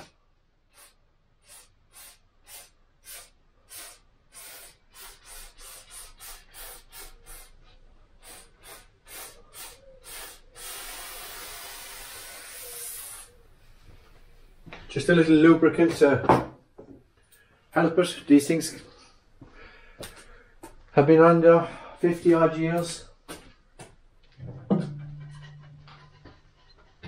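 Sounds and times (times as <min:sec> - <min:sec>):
aerosol spraying: 0:00.7 - 0:07.6, 0:08.2 - 0:13.4.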